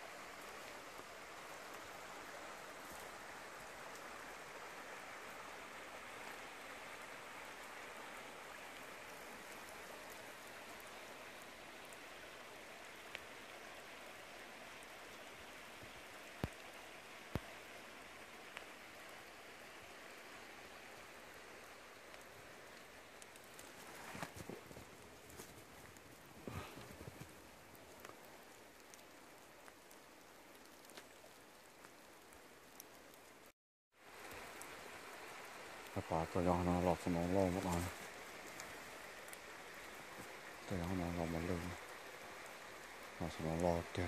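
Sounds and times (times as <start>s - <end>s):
wet snow pattering: 0.0s - 33.4s, 34.0s - 44.0s
faint sharp ticks: 13.1s - 13.3s.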